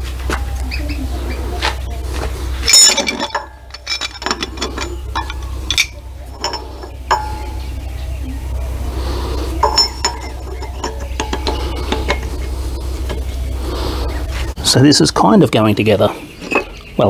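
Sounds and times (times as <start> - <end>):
metal gears clinking: 2.6 - 7.8, 9.6 - 13.4.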